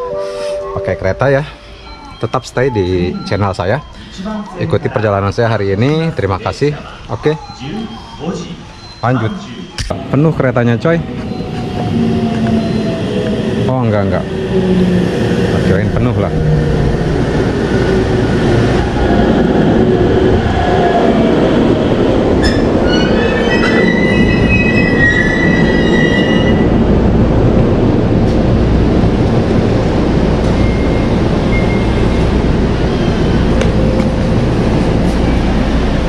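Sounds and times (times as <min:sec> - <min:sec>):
train rumbling: 0:00.0 - 0:36.0
wheel and brake squeal: 0:22.4 - 0:26.7.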